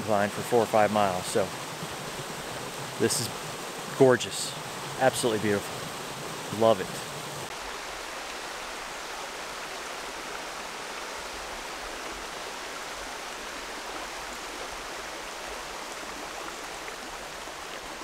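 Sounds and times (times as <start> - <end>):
creek babbling over stones: 0.0 - 18.0.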